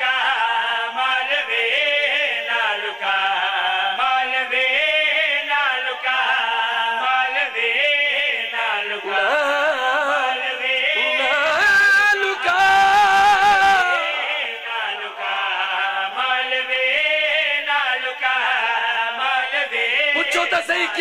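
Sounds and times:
men chanting wavering notes: 0:10.9 - 0:15.5.

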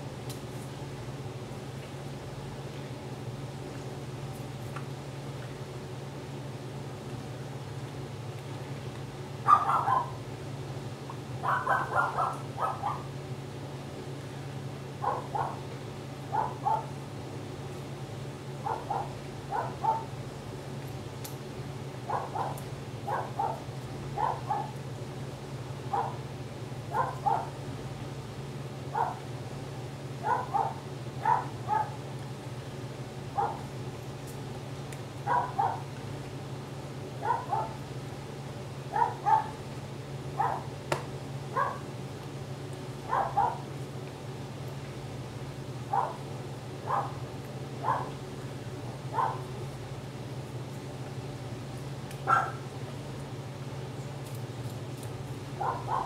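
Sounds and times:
steady low hum: 0:00.0 - 0:56.0
dog barking: 0:09.4 - 0:10.2, 0:11.4 - 0:13.1, 0:15.0 - 0:15.6, 0:16.3 - 0:16.9, 0:18.6 - 0:20.1, 0:22.1 - 0:24.8, 0:25.9 - 0:26.2, 0:26.9 - 0:27.6, 0:28.9 - 0:29.2, 0:30.2 - 0:32.0, 0:33.4 - 0:33.7, 0:35.2 - 0:35.9, 0:37.2 - 0:37.8, 0:38.9 - 0:39.6, 0:40.4 - 0:40.7, 0:41.5 - 0:41.9, 0:43.0 - 0:43.6, 0:45.9 - 0:46.2, 0:46.8 - 0:47.2, 0:47.8 - 0:48.2, 0:49.1 - 0:49.5, 0:52.2 - 0:52.6, 0:55.6 - 0:56.0.

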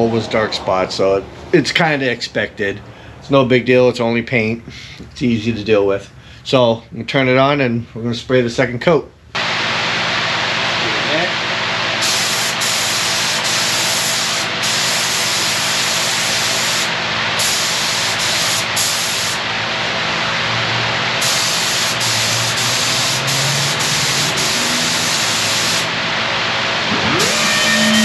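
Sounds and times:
steady rushing noise: 0:00.0 - 0:02.9
paint spray gun hissing: 0:12.0 - 0:19.4, 0:21.2 - 0:25.9.

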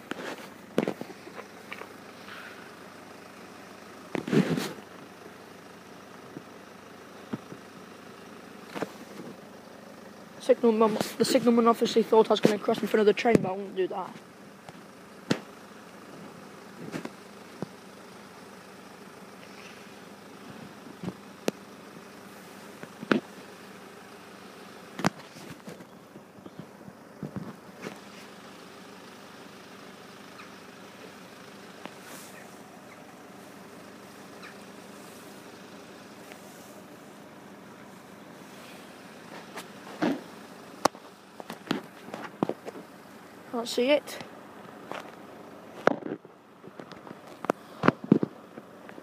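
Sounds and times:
outdoor background noise: 0:00.0 - 0:49.0
road traffic hum: 0:00.0 - 0:49.0
loud rustling bump: 0:38.5 - 0:42.9.

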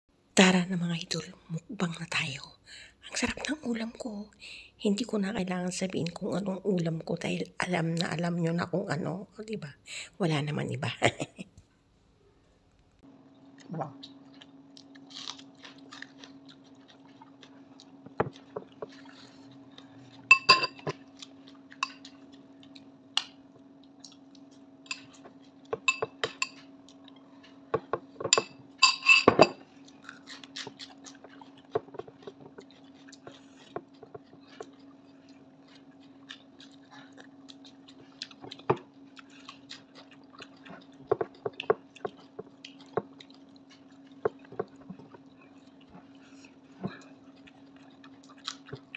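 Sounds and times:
steady low hum: 0:00.1 - 0:48.9
person chewing: 0:13.4 - 0:28.8, 0:29.6 - 0:48.9
plate clinking: 0:20.3 - 0:20.9, 0:28.4 - 0:29.6.

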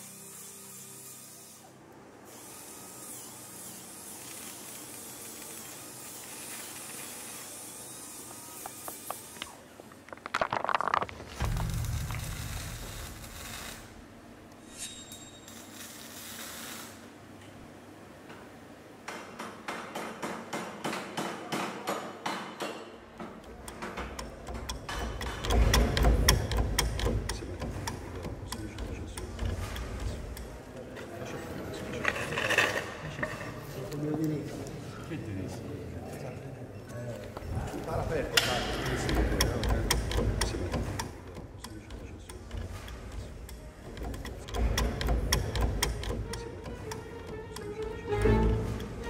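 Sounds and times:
low rumble: 0:11.3 - 0:14.0
clock ticking: 0:23.6 - 0:30.6, 0:39.0 - 0:49.0.

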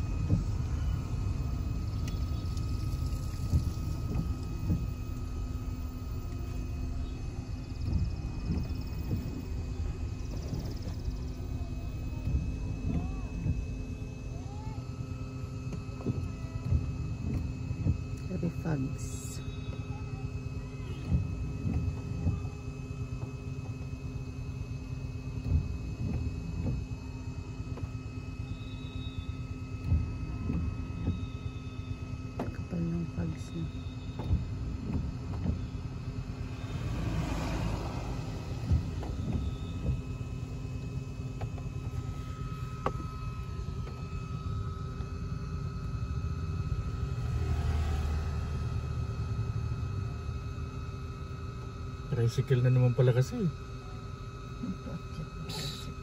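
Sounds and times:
faint steady hum: 0:00.0 - 0:56.0
low thumps: 0:34.1 - 0:44.3.

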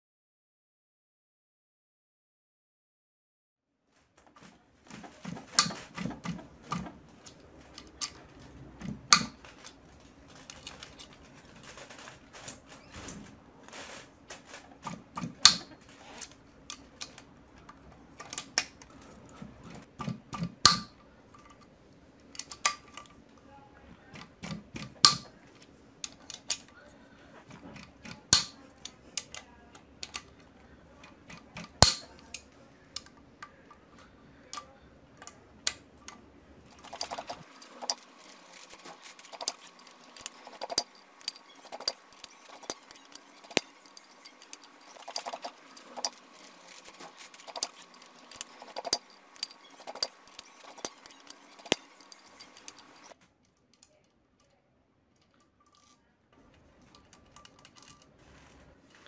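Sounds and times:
metal tools clinking on metal: 0:36.7 - 0:53.2, 0:56.8 - 0:58.2.

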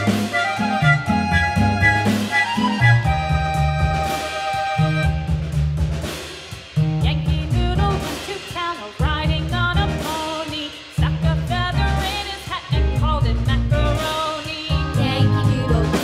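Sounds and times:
melodic lead over bass line: 0:00.0 - 0:06.0, 0:14.7 - 0:16.0.

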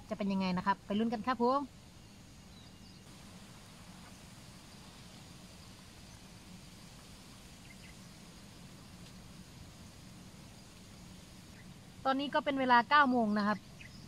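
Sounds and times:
low background hiss: 0:00.0 - 0:14.0.

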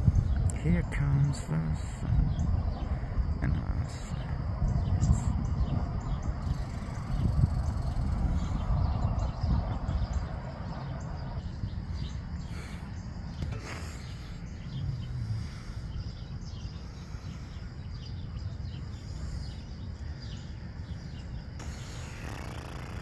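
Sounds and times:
steady low rumble: 0:00.0 - 0:22.3
small birds chirping: 0:00.0 - 0:23.0.

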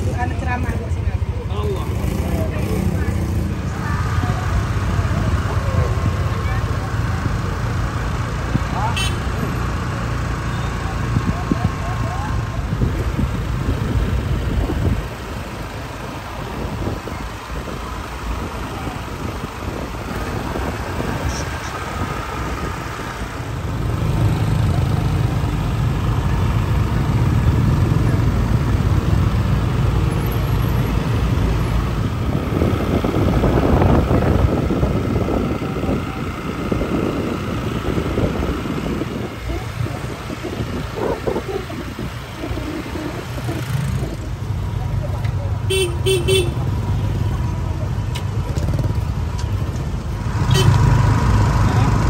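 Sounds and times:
vehicle engine running: 0:00.0 - 0:52.0.

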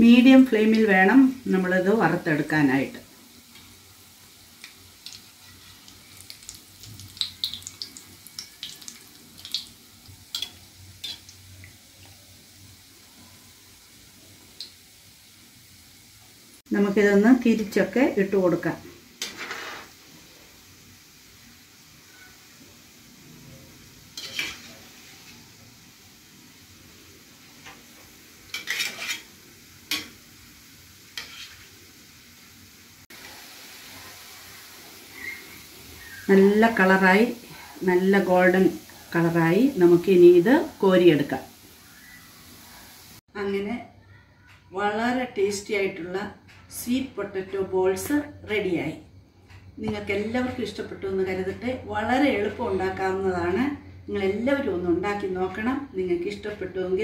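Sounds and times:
food deep-frying in oil: 0:00.0 - 0:43.8
oil crackles and pops: 0:04.4 - 0:12.2.

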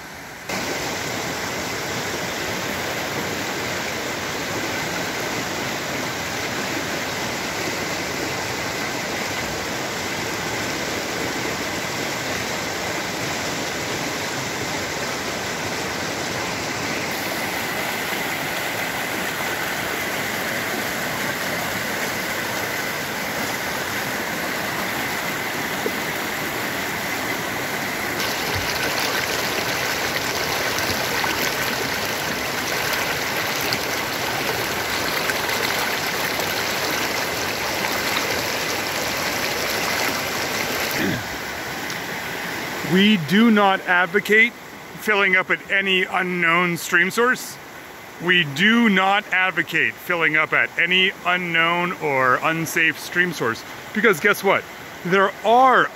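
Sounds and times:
stream rushing over rocks: 0:00.0 - 0:55.9.

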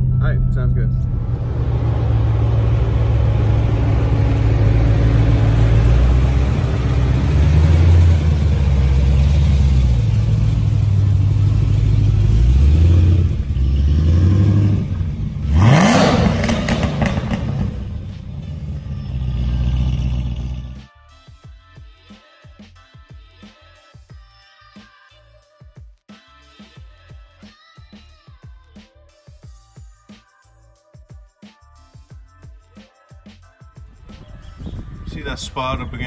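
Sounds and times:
car engine running: 0:00.0 - 0:20.8
engine revving: 0:00.0 - 0:20.9.

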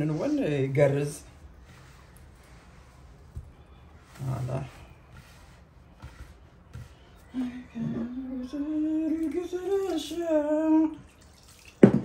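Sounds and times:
woman humming a slow tune: 0:07.3 - 0:09.3.

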